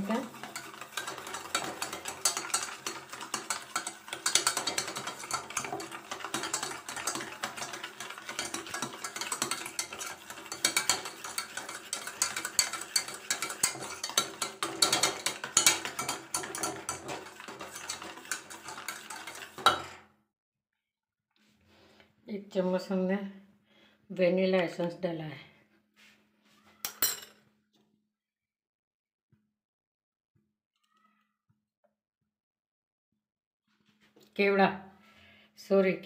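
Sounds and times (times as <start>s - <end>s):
whisk scraping metal pot: 0.0s - 20.0s.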